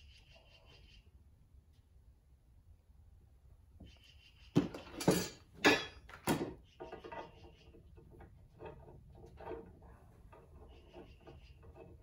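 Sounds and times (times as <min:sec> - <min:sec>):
metal parts clanking: 0:04.6 - 0:07.4
parts rattling and rustling: 0:04.6 - 0:12.0.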